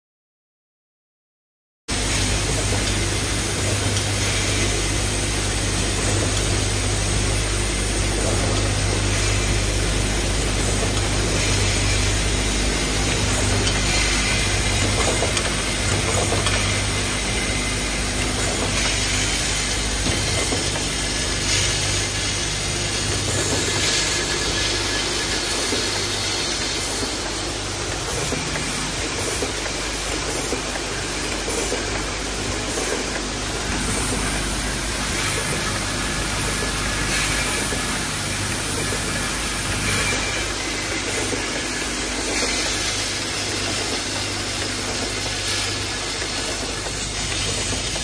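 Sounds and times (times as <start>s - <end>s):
machine humming: 1.9s - 48.0s
pneumatic puffs: 2.0s - 34.5s.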